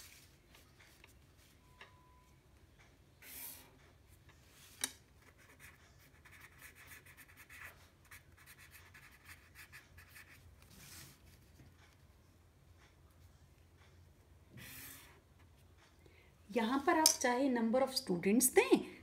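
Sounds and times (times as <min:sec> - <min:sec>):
felt-tip pen writing on paper: 0:05.2 - 0:10.4.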